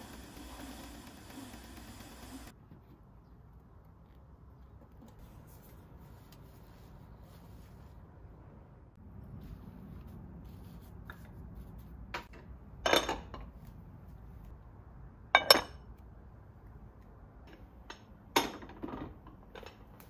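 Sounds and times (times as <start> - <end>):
dishes and utensils clattering: 12.2 - 13.5.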